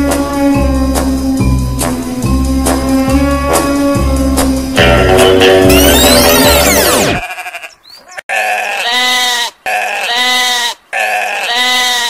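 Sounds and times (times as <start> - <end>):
music: 0.0 - 7.2
animal bleating: 2.9 - 4.2, 5.7 - 12.0.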